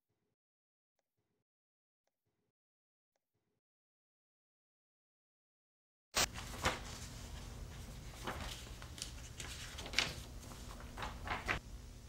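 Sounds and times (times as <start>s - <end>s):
steady low hum: 6.3s - 12.0s.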